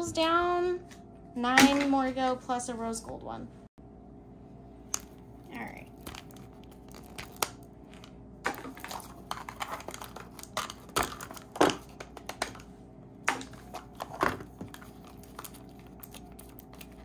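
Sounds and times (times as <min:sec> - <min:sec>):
light crinkling: 0:04.9 - 0:10.8.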